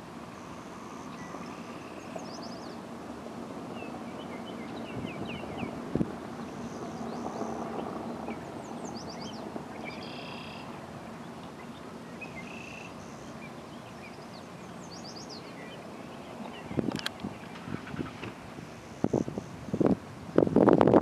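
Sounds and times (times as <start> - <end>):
small birds chirping: 1.0 - 2.8, 6.4 - 18.3.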